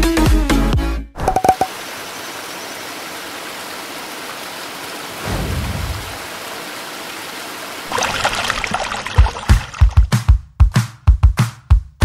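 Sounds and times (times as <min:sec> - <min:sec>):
waterfall rushing hiss: 0:01.7 - 0:09.9.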